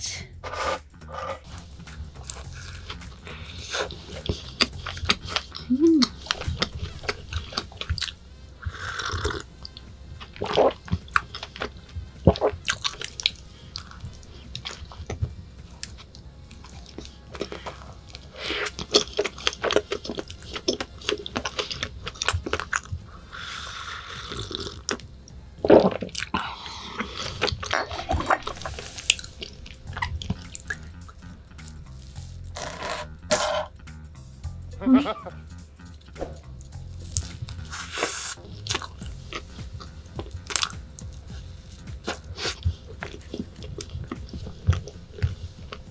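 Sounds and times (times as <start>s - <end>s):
biting and chewing pastry: 1.5s - 33.1s, 35.8s - 45.9s.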